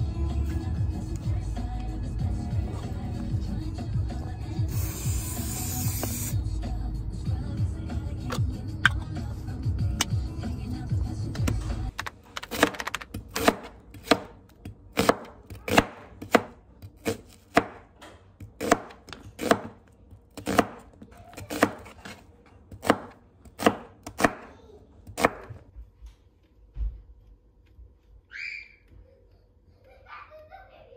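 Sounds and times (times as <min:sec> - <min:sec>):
knife chopping on plastic board: 0:12.4 - 0:24.5, 0:25.1 - 0:25.6.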